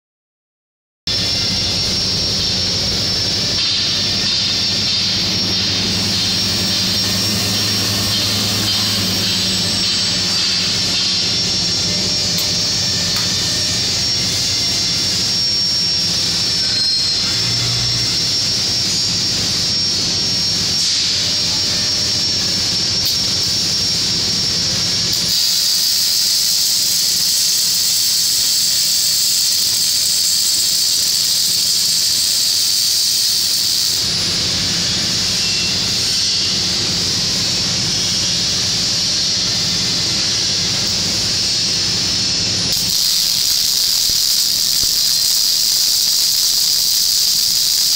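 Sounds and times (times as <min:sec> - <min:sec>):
low machine hum: 0:01.1 - 0:25.2
thin high whine: 0:01.1 - 0:47.9
welding arc hissing: 0:01.1 - 0:47.9.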